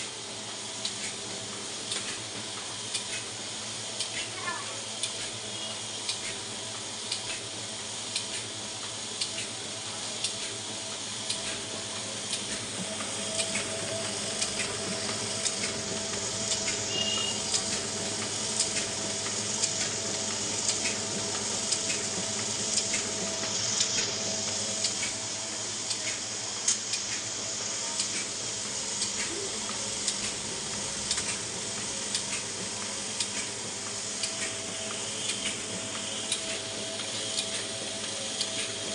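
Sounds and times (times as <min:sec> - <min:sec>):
printing press hiss and whir: 0:00.0 - 0:38.9
printing press clicks: 0:11.2 - 0:25.2, 0:28.0 - 0:38.9.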